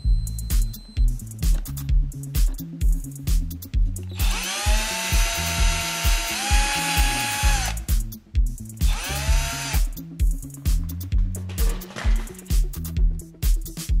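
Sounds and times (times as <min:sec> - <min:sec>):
background music with steady beat: 0:00.0 - 0:14.0
cordless drill whining: 0:04.1 - 0:07.9, 0:08.9 - 0:09.9.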